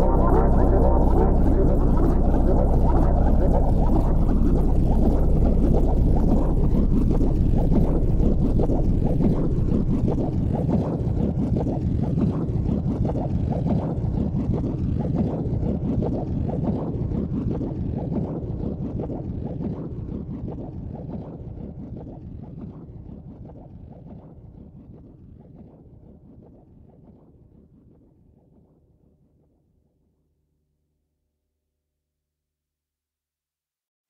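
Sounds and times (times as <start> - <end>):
low dense rumbling: 0.0 - 12.7.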